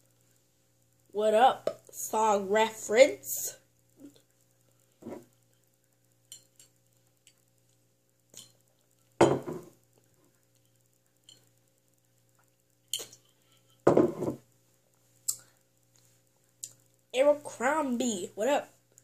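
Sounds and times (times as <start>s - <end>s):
bottle knocks: 9.2s - 9.7s.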